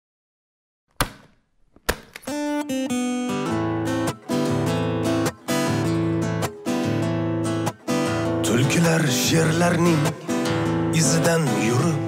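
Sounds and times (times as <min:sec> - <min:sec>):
sharp knocks: 0:00.9 - 0:02.3
acoustic guitar playing: 0:02.1 - 0:12.0.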